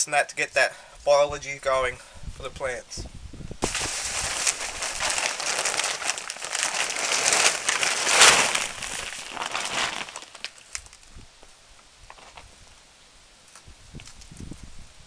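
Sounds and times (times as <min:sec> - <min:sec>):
light rustling of compost: 0:00.4 - 0:12.8
compost pouring into tub: 0:03.6 - 0:10.6
bag crinkling: 0:03.6 - 0:11.1.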